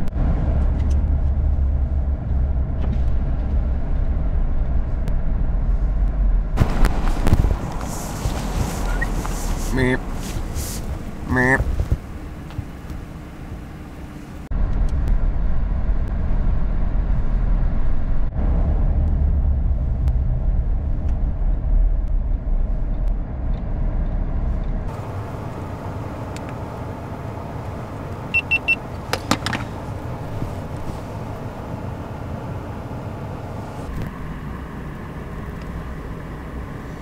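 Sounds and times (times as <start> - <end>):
vehicle road and engine rumble: 0.0 - 37.0
short beeps: 28.3 - 28.8.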